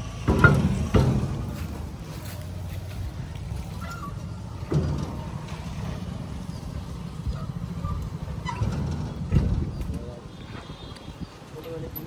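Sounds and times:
tractor diesel engine idling: 0.0s - 12.0s
thump: 0.3s - 1.5s.

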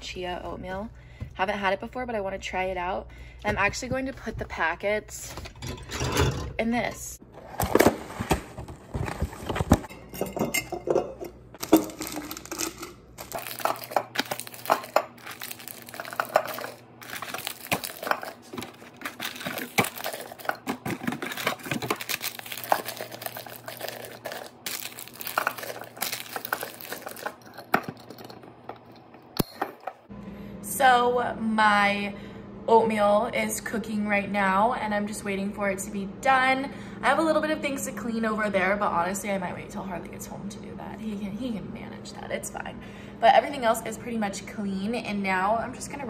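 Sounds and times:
paper packets crinkling: 11.6s - 28.3s.

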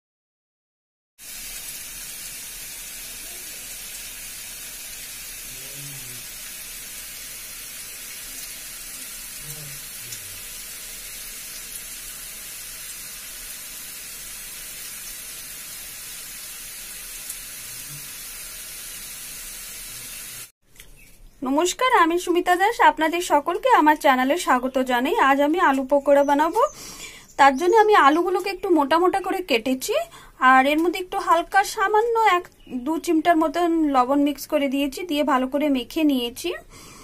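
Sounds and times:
steady hiss: 1.2s - 20.5s
faint voice: 5.5s - 6.2s, 9.4s - 10.4s.

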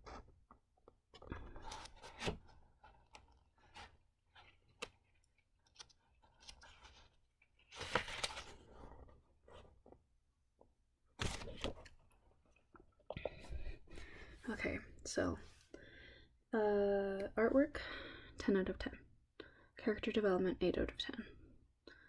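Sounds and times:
paper pages rustling: 1.1s - 10.0s, 11.2s - 12.2s.

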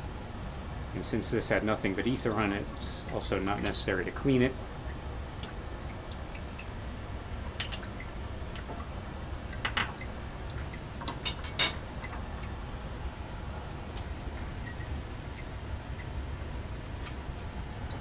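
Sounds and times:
fume hood hum: 0.0s - 18.0s
glassware clinking: 11.1s - 11.8s.

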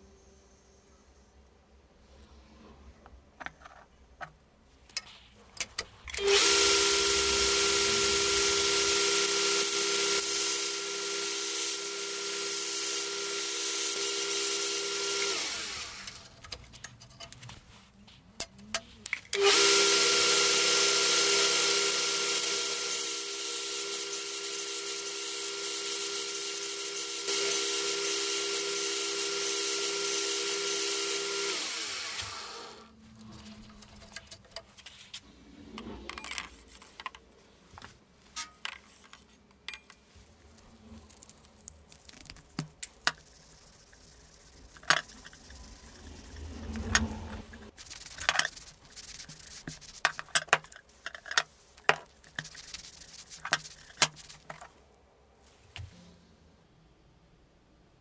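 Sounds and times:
power tool cutting steel: 6.2s - 16.2s, 19.4s - 32.9s.

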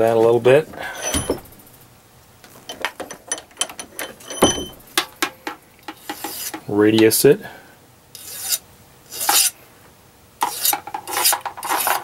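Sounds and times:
hand file rasping on brass rod: 6.0s - 6.6s.

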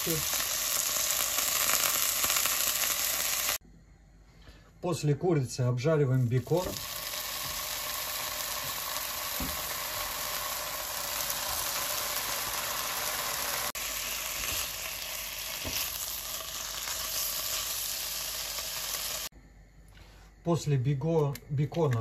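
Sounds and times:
bacon sizzling in a frying pan: 0.0s - 3.6s, 6.2s - 19.3s.

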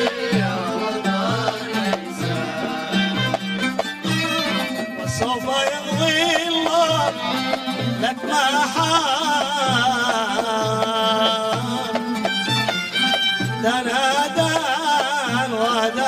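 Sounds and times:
man singing: 0.0s - 3.6s, 4.2s - 12.7s, 13.4s - 16.0s
hand drum beat: 0.0s - 16.0s.

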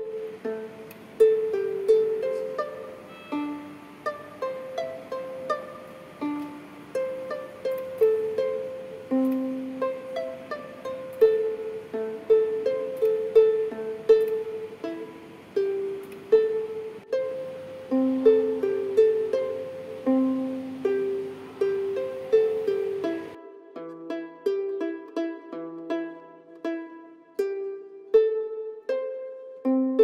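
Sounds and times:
plucked-string melody: 0.0s - 30.0s.

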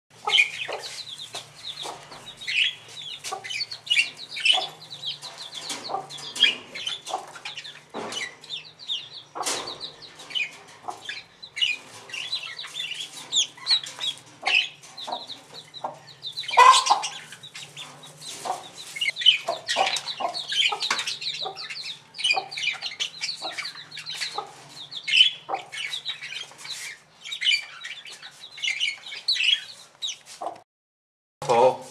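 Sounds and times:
poultry clucking: 0.2s - 30.6s
poultry peeping: 0.2s - 30.6s.

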